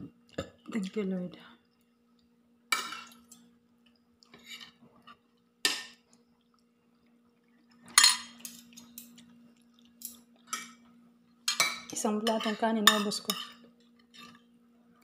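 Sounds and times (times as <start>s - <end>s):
faint steady hum: 0.0s - 15.0s
metal spoons clinking on pot: 7.9s - 9.2s, 11.5s - 13.6s.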